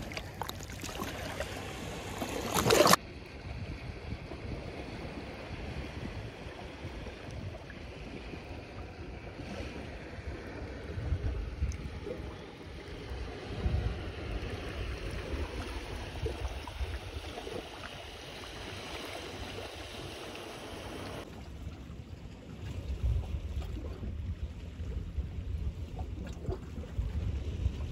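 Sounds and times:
sea waves washing on shore: 0.0s - 21.6s
wind rumbling on microphone: 0.0s - 27.9s.

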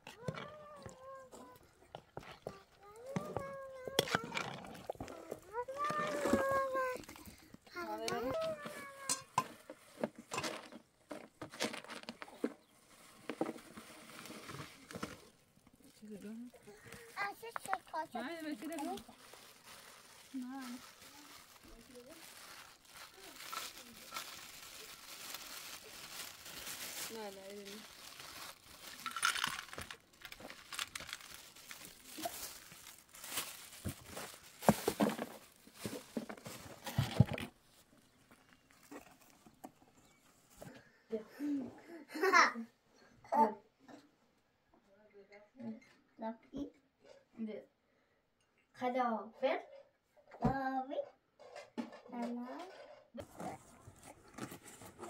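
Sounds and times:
plastic wrapping crinkling: 0.0s - 39.6s
pots and dishes clinking: 9.0s - 9.6s.

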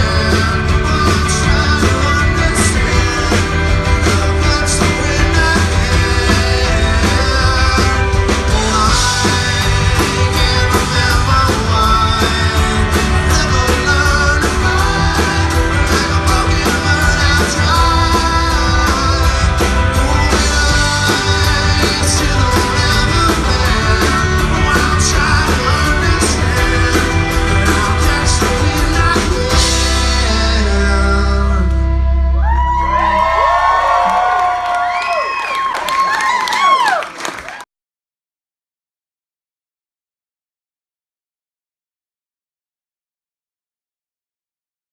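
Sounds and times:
lead singer singing: 0.0s - 32.0s
rock band playing live: 0.0s - 37.0s.

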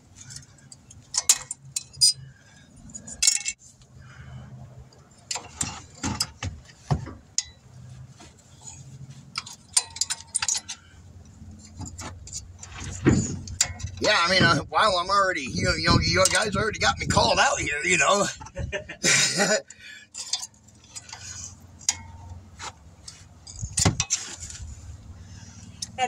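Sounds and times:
hand tools clinking on metal: 0.2s - 3.6s, 8.6s - 14.1s, 19.1s - 24.4s.

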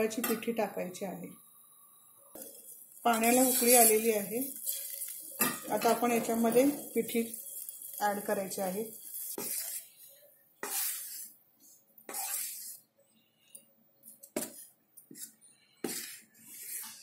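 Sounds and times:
flour pouring into boiling water: 2.4s - 10.0s.

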